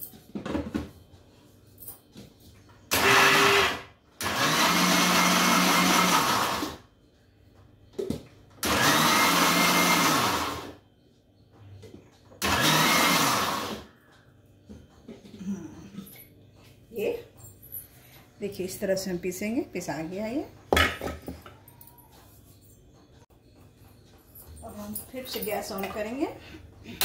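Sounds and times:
mixer grinder spinning: 0:02.9 - 0:06.8, 0:08.6 - 0:10.8, 0:12.4 - 0:13.9.

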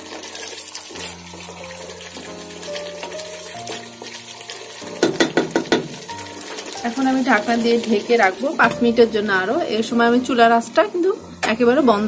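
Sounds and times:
spatula stirring gravy: 0:00.0 - 0:06.8
background music: 0:00.0 - 0:12.0.

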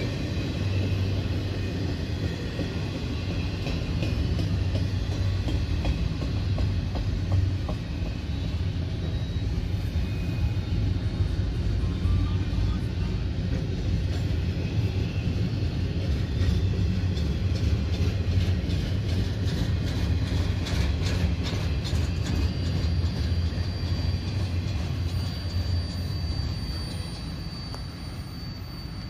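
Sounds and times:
freight train rumbling past: 0:00.0 - 0:29.0
train wheel clicks: 0:00.9 - 0:08.6, 0:16.0 - 0:28.2.

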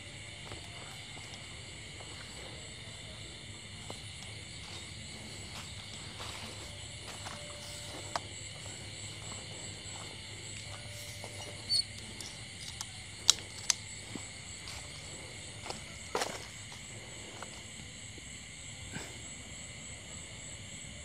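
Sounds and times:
crickets trilling: 0:00.0 - 0:21.0
sharp clicks and snaps: 0:11.8 - 0:13.8.

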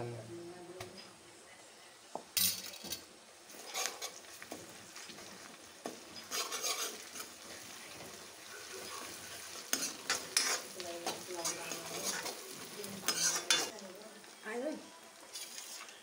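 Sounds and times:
onion sizzling in hot oil: 0:03.0 - 0:16.0
ladle scraping a metal pan: 0:03.5 - 0:04.3, 0:06.0 - 0:08.1, 0:08.8 - 0:13.7.

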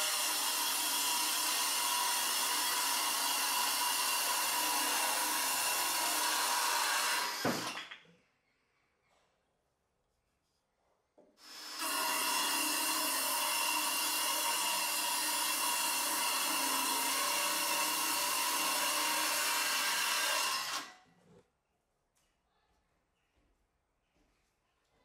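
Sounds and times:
circular saw cutting wood: 0:00.0 - 0:07.8, 0:11.4 - 0:21.0.

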